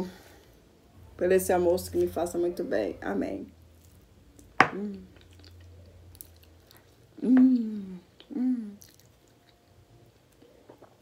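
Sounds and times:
person chewing with wet smacks: 3.8s - 7.0s, 8.1s - 11.0s
person humming mm: 4.6s - 5.2s, 7.2s - 8.9s.

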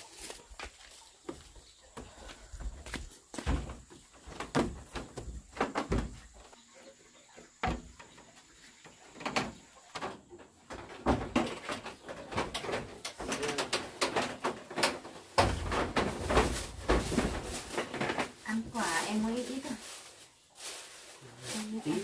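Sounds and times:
bare footsteps on wooden boards: 0.2s - 6.6s.

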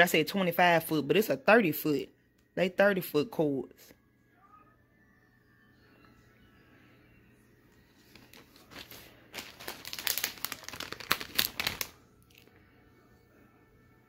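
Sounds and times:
plastic bag crinkling: 8.0s - 12.5s.

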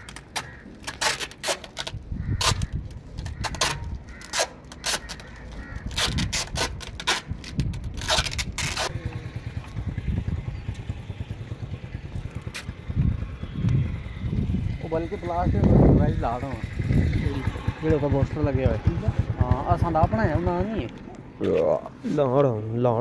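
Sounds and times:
cable fittings clicking and scraping: 0.0s - 9.0s
low rumbling handling noise: 0.0s - 21.6s.

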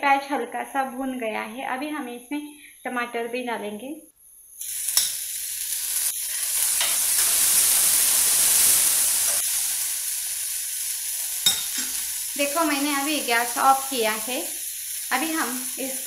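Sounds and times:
tomato sizzling in frying pan: 4.6s - 16.0s.

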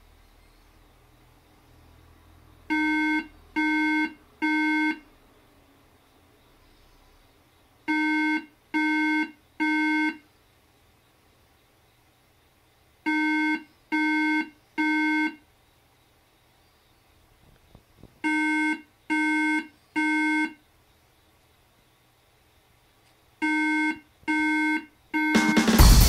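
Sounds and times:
computer error beeps: 23.5s - 25.8s.

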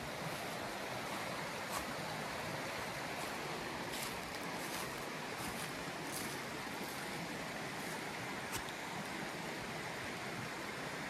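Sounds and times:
creek water rushing: 0.0s - 11.0s
footsteps on dry leaves: 3.1s - 8.7s.

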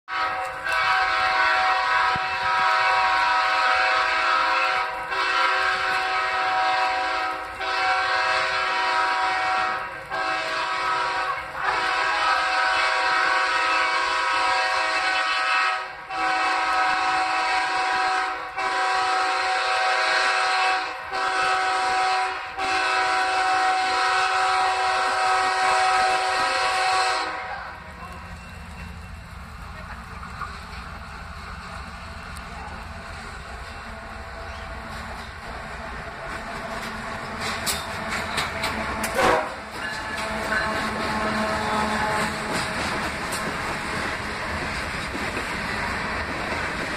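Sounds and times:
locomotive air horn blasts: 0.1s - 27.7s, 38.0s - 42.9s.

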